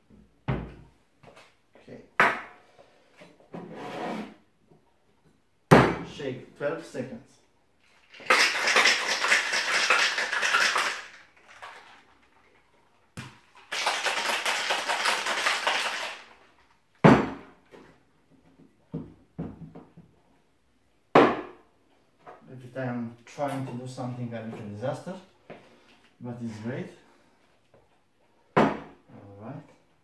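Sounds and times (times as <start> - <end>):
ice rattling in shaker: 7.8 - 12.5, 13.4 - 16.4.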